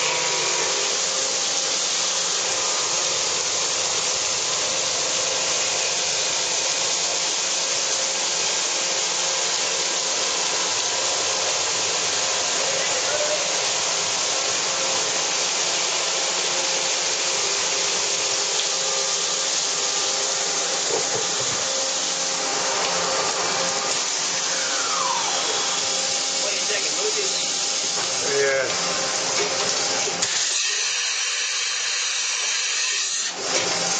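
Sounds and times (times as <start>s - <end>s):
coolant spray hissing: 0.0s - 32.7s
machine spindle running: 20.7s - 30.8s
tone falling in pitch: 24.4s - 25.9s.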